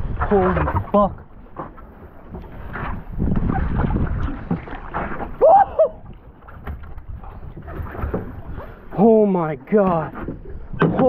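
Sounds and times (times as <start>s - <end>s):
wind rumble: 0.0s - 9.0s
knocks on a boat: 10.7s - 11.0s.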